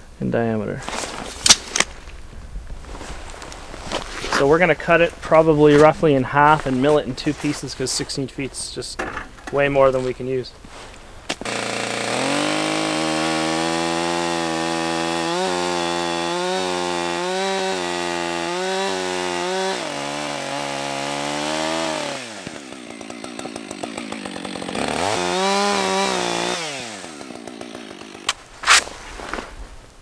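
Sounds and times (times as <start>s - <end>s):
chainsaw cutting log: 11.3s - 29.4s.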